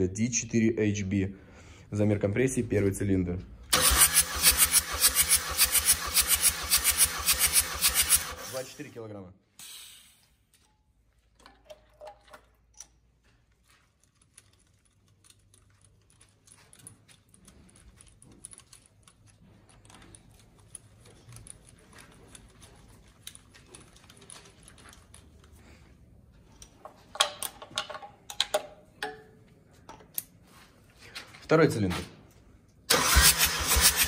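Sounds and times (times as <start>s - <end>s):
metallic clicks and taps: 26.6s - 29.3s.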